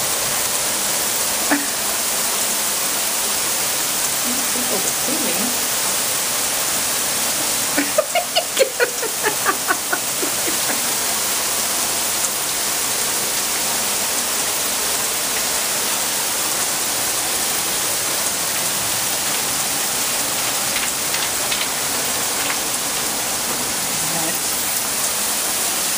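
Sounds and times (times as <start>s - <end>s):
heavy rain on pavement: 0.0s - 25.9s
person's voice: 4.2s - 5.6s, 7.8s - 11.0s, 23.9s - 24.6s.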